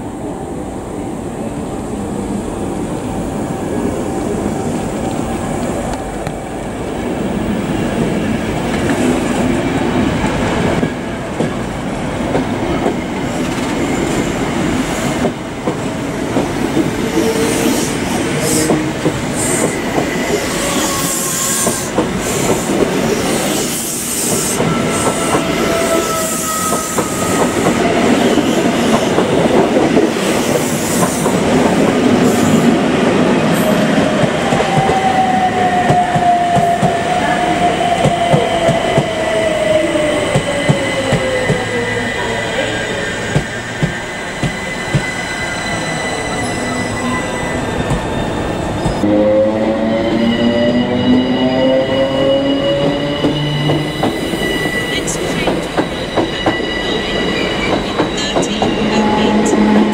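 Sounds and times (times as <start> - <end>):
train wheels clattering on rails: 10.8 - 32.7, 33.7 - 37.2, 37.8 - 39.7, 40.3 - 41.8, 43.2 - 45.3, 52.7 - 59.9.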